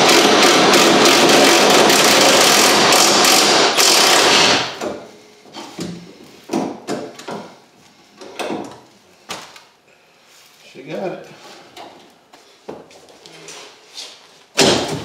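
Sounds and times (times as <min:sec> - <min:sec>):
impact wrench running: 0:00.0 - 0:04.9.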